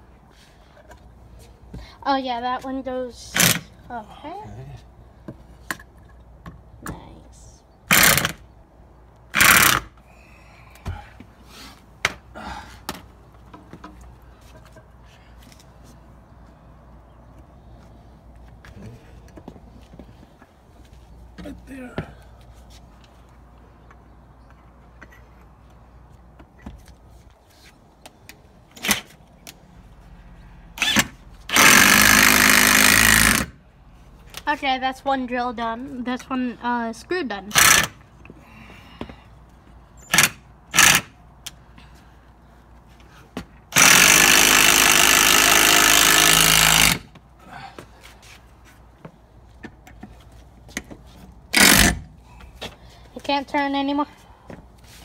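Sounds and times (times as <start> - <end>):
impact driver driving screw: 7.9 - 8.4, 9.4 - 9.9, 30.8 - 33.5, 37.5 - 37.9, 40.1 - 41.1, 43.7 - 47.0, 51.5 - 52.1.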